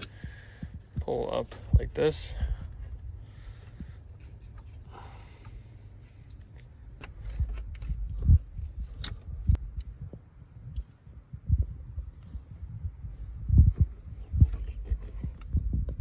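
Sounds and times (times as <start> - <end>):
hoses and wiring rustling: 0.0 - 11.0.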